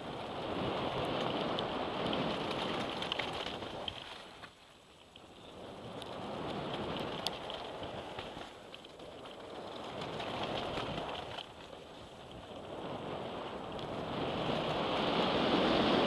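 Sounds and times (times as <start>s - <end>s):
bike tyres rolling over gravel: 0.0s - 16.0s
bike clicks and rattles: 0.9s - 15.1s
wind on microphone: 9.4s - 16.0s.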